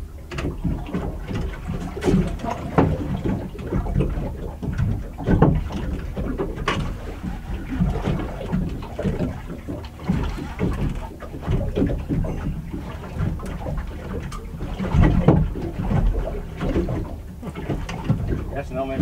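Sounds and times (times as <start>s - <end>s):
low rumble of wind and water: 0.0s - 19.0s
sharp knocks: 0.3s - 7.0s.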